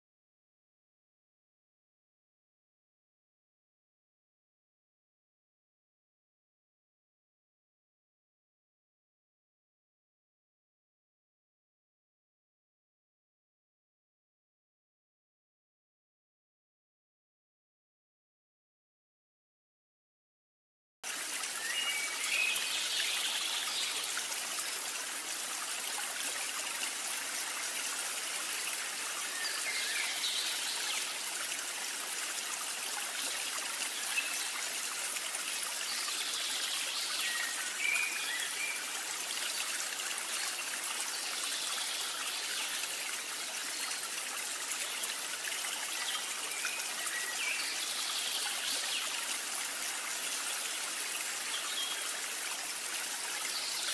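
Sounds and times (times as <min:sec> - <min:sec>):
trickling running water: 0:21.0 - 0:53.9.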